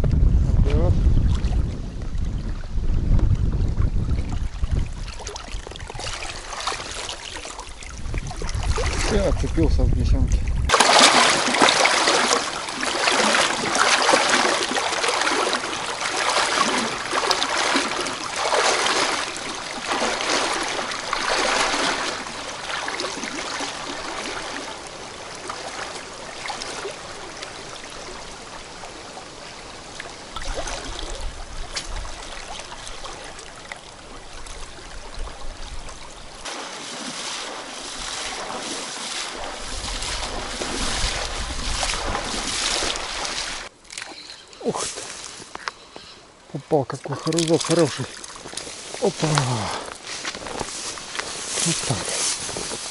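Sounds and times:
splashing strides in water: 4.1s - 9.5s, 10.3s - 45.6s, 46.9s - 52.9s
river current rushing: 10.7s - 52.9s.

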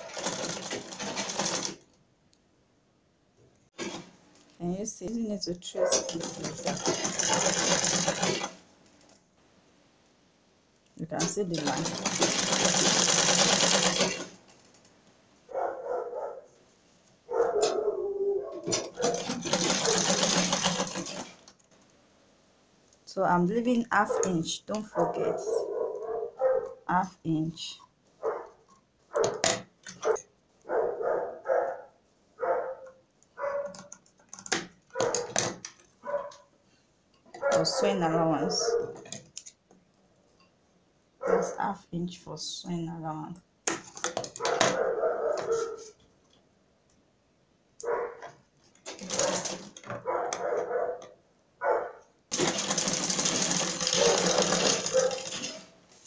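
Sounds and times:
sewing machine stitching: 0.0s - 1.8s, 3.8s - 4.2s, 5.9s - 8.6s, 11.2s - 14.4s, 18.6s - 21.6s, 48.8s - 49.9s, 52.3s - 55.7s
dog barking: 15.5s - 16.6s, 17.3s - 19.2s, 24.9s - 26.8s, 28.2s - 29.4s, 30.0s - 33.9s, 34.9s - 35.4s, 36.0s - 36.5s, 37.4s - 39.0s, 41.2s - 41.6s, 44.4s - 46.0s, 47.8s - 48.3s, 50.0s - 52.1s, 54.9s - 55.2s.

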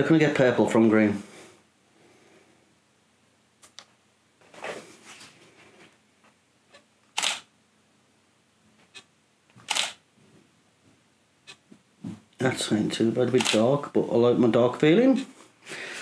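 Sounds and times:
camera shutter firing: 7.1s - 7.5s, 9.6s - 10.0s, 13.4s - 13.7s.

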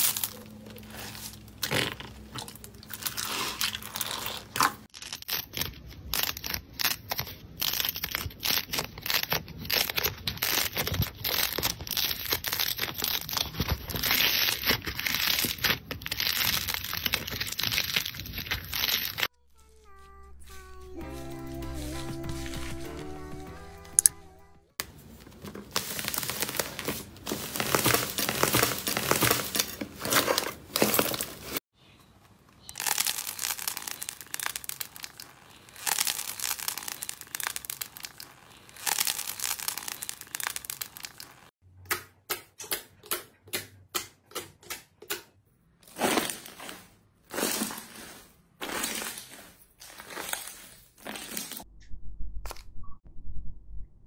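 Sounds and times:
slime crackling: 0.0s - 19.3s, 24.8s - 31.6s, 32.6s - 41.5s, 45.9s - 51.7s
stress ball crunching: 0.0s - 19.3s, 24.8s - 31.6s, 32.6s - 41.5s, 45.8s - 51.6s.

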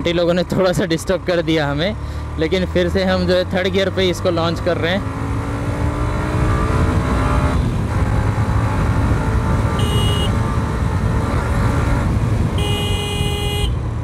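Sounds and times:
horn beeping: 9.7s - 10.4s, 12.6s - 13.8s.

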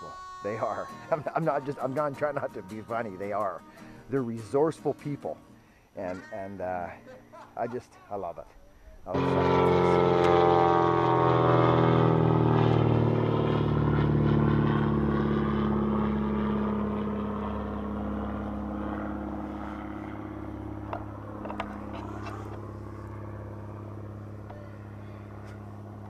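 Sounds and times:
engine droning: 9.1s - 26.0s.

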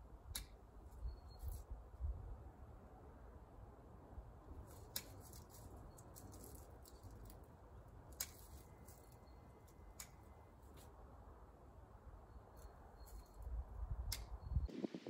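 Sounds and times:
pruning shears snipping: 4.7s - 7.0s, 8.1s - 8.9s.

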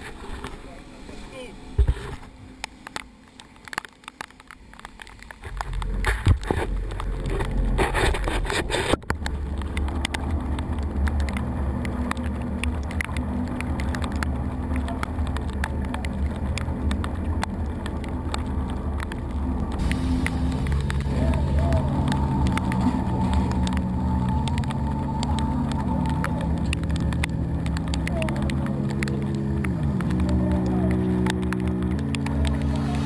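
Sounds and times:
outboard motor drone: 5.4s - 33.0s.

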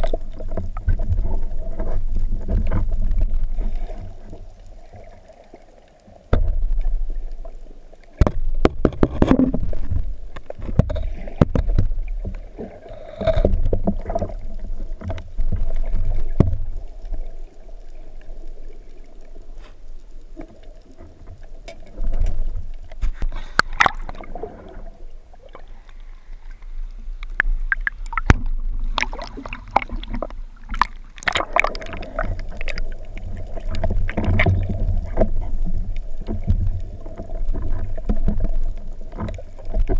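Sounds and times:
muffled underwater rushing water: 0.0s - 39.9s.

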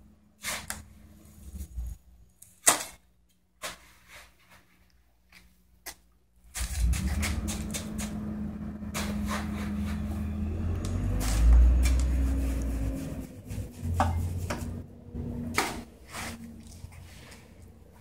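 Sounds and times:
scoop scraping cement mix: 6.5s - 14.9s, 15.5s - 17.7s.

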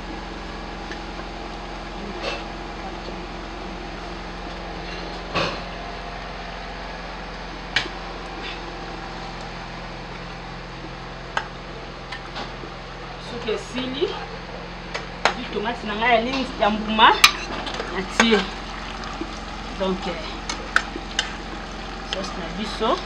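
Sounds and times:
steady mechanical hum: 0.0s - 23.0s.

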